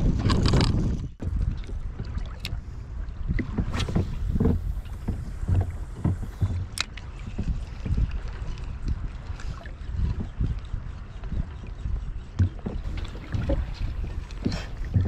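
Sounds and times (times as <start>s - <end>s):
water lapping around a kayak: 0.0s - 15.0s
wind rumbling on microphone: 0.0s - 15.0s.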